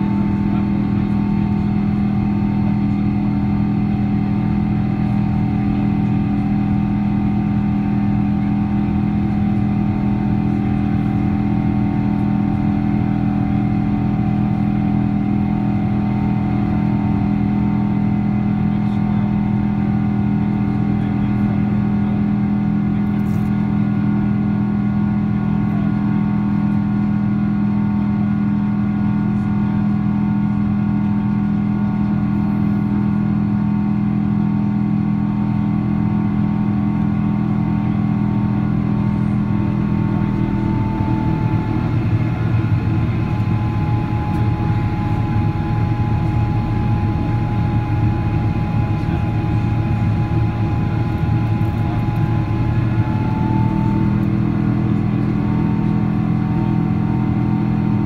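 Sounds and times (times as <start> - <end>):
jet engine hum: 0.0 - 58.0.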